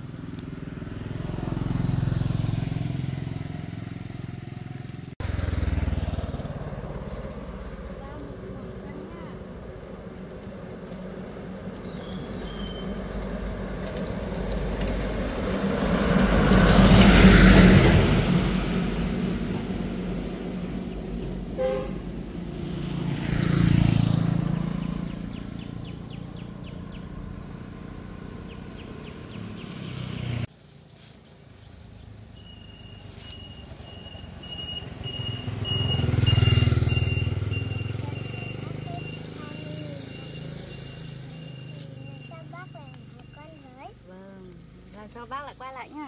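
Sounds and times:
vehicles driving past: 0.0s - 46.0s
short beep: 33.3s - 39.2s.

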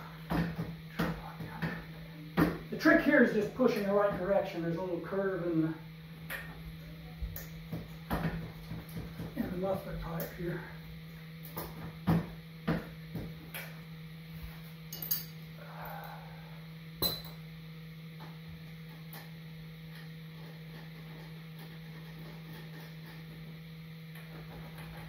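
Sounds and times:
steady low hum: 0.0s - 25.0s
metal clinks and knocks: 14.9s - 15.4s.

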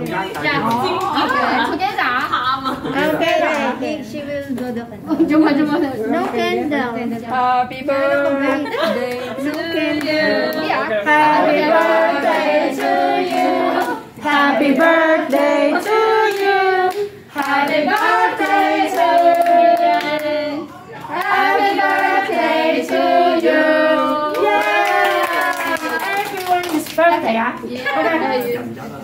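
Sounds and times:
rhythmic hand clapping: 0.0s - 1.4s, 11.6s - 20.4s, 21.0s - 23.6s, 24.3s - 27.2s
women singing together: 7.0s - 25.8s.

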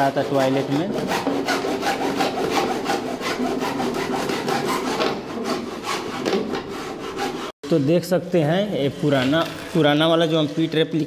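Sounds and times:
hacksaw cutting a pipe: 0.0s - 7.6s.

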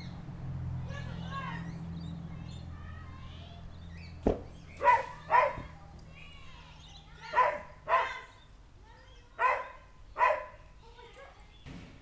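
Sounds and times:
sharp thump: 4.2s - 4.5s, 11.6s - 12.0s
dog barking: 4.8s - 5.7s, 7.3s - 8.3s, 9.4s - 10.6s.

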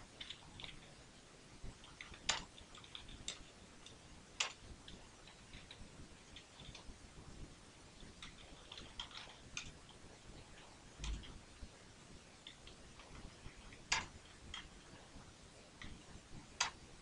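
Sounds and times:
computer keyboard typing: 1.8s - 3.5s.

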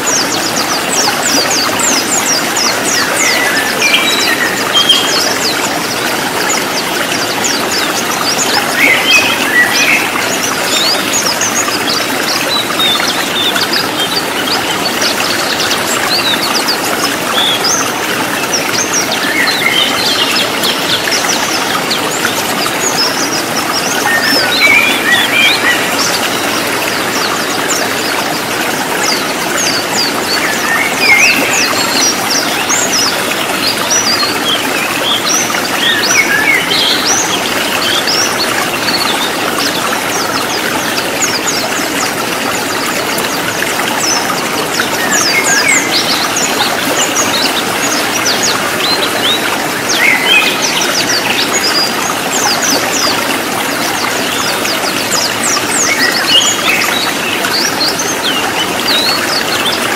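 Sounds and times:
birds twittering: 0.0s - 59.9s
stream water rushing: 0.0s - 59.9s.

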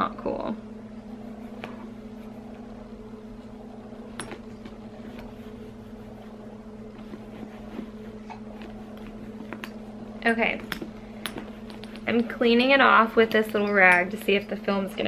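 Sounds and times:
low electric motor hum: 0.0s - 15.0s
cloth rubbing: 1.0s - 12.8s.

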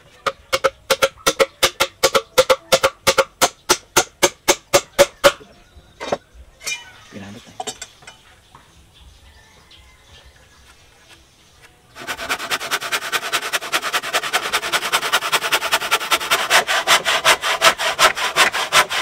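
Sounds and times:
knocks and scraping: 0.0s - 8.9s, 10.5s - 19.0s
rapid ringing tool strikes on wood: 0.3s - 5.4s.

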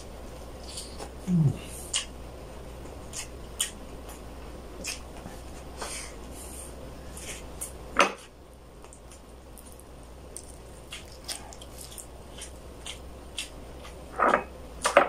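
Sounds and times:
wet chewing and lip smacks: 3.1s - 4.2s, 8.8s - 14.0s.

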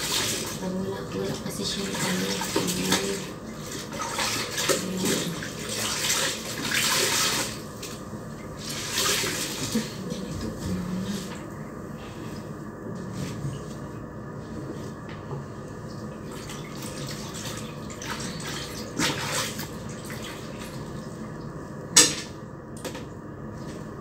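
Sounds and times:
water splashes: 0.0s - 8.0s, 8.6s - 10.2s, 16.2s - 21.1s
water sloshing in a tub: 0.0s - 21.9s.

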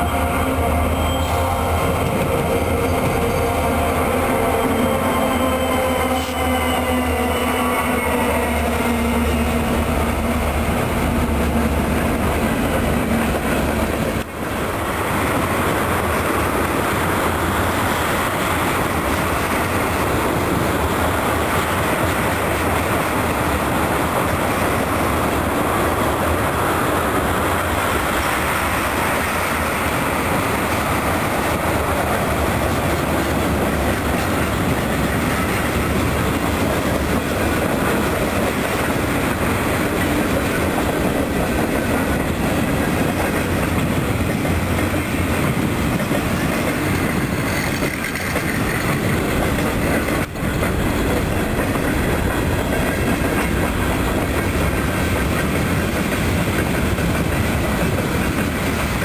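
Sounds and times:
diesel locomotive drone: 0.0s - 59.0s
freight cars rumbling and clacking: 30.3s - 59.0s.

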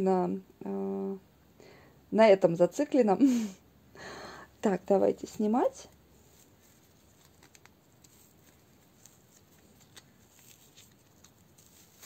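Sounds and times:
fabric rustling: 5.2s - 12.0s
small scratches of fabric: 6.1s - 12.0s.

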